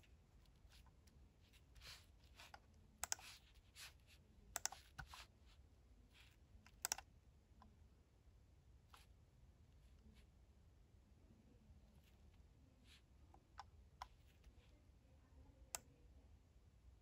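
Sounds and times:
computer keyboard key clicks: 3.0s - 3.3s, 4.6s - 5.2s, 6.7s - 7.0s.

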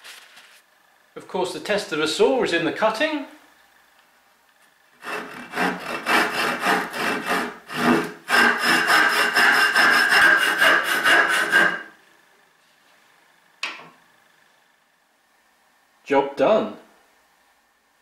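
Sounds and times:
hand saw rasping through wood: 5.0s - 11.9s.

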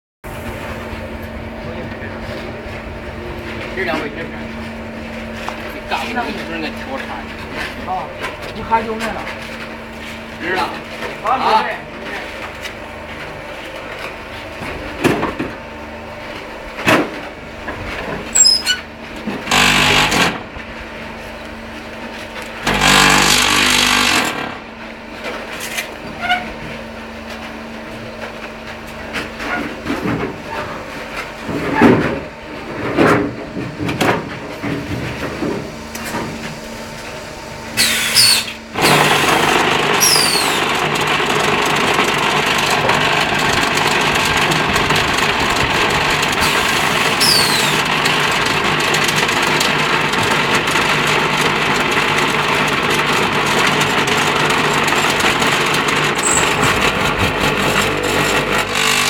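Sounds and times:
vibrating table rattling hum: 17.3s - 20.8s, 22.6s - 24.8s, 38.2s - 59.0s
short falling squeaks: 18.3s - 18.9s, 37.8s - 38.6s, 40.0s - 40.6s, 47.2s - 47.8s.

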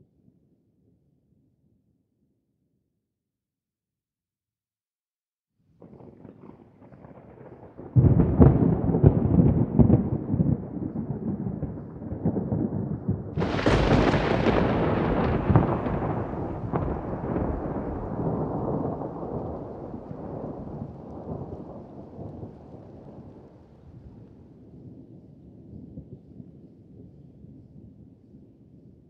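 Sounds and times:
thunder rumbling and cracking: 5.8s - 26.2s.

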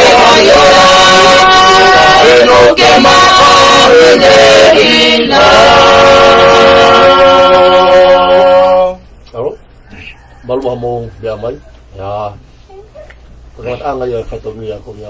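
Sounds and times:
family singing a hymn in parts: 0.0s - 9.1s.

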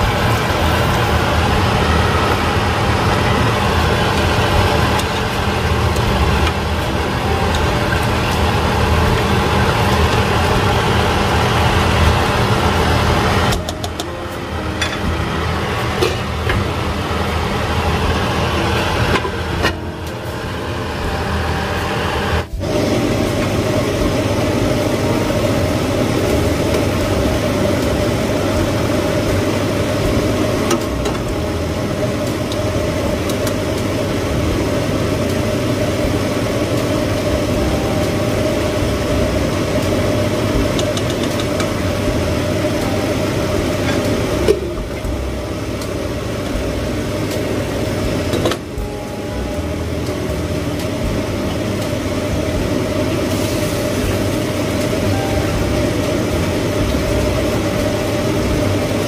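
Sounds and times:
range hood fan humming: 0.0s - 59.0s.

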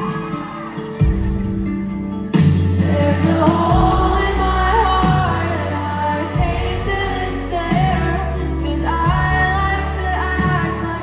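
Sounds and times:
pop band playing: 0.0s - 11.0s
woman singing: 2.7s - 11.0s.

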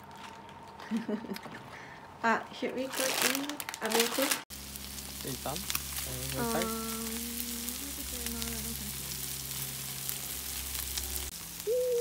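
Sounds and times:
meat sizzling on a hotplate: 4.5s - 12.0s
humming tone: 6.2s - 12.0s.

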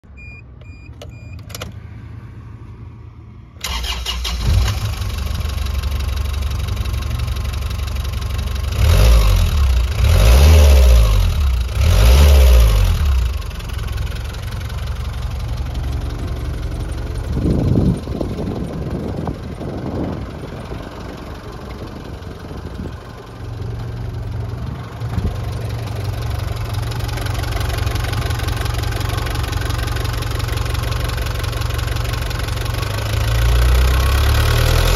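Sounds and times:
short beeps: 0.1s - 1.5s
diesel engine starting and revving: 0.2s - 34.9s.

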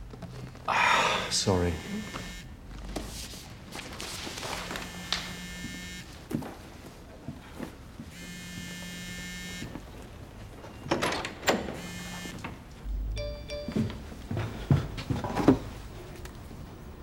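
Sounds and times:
phone buzzing on vibrate: 1.7s - 2.5s, 4.7s - 6.2s, 8.1s - 9.8s, 11.8s - 12.4s.

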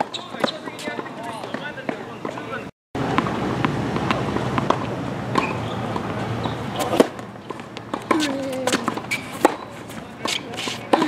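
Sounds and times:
tennis ball bouncing: 0.0s - 11.0s
racket hitting ball: 3.0s - 11.0s.

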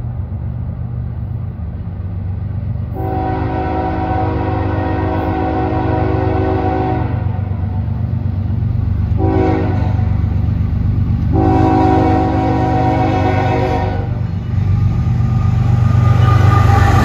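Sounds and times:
diesel engine droning: 0.0s - 17.0s
locomotive air horn blasts: 2.9s - 7.8s, 9.2s - 10.2s, 11.3s - 14.2s, 16.0s - 17.0s.

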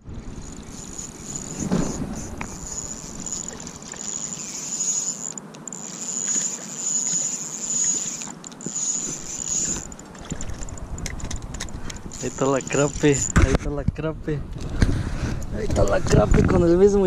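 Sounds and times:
fishing reel whirring: 0.0s - 13.5s.

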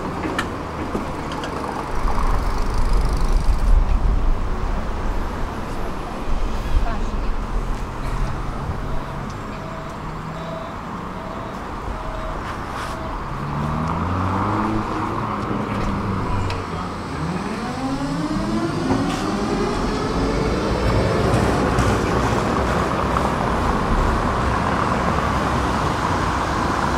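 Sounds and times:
road traffic noise: 0.0s - 26.9s
tram motors whining: 8.2s - 26.9s.

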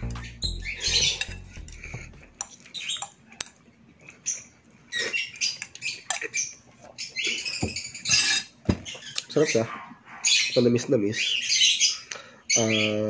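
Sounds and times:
background music: 0.0s - 2.4s
fork clinking on glass bowl: 0.9s - 3.1s.

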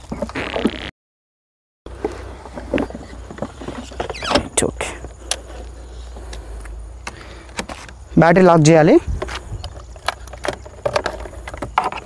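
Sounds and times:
battery knocking and scraping: 1.9s - 8.1s, 9.0s - 12.0s.

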